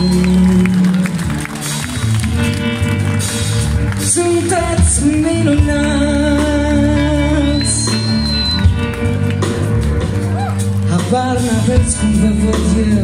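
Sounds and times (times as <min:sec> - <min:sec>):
live rock band: 0:00.0 - 0:13.0.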